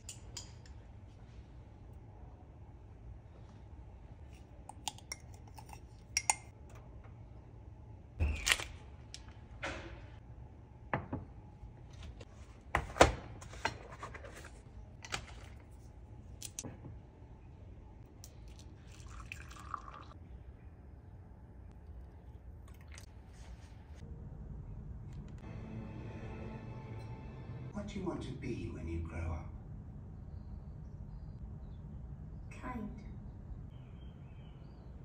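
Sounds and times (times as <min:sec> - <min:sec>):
ceramic mug set on countertop: 0:00.0 - 0:01.6, 0:03.4 - 0:07.2, 0:10.8 - 0:17.1, 0:18.1 - 0:20.2
metal spoon against porcelain plate: 0:04.3 - 0:06.5
coffee pouring into mug: 0:18.4 - 0:20.2.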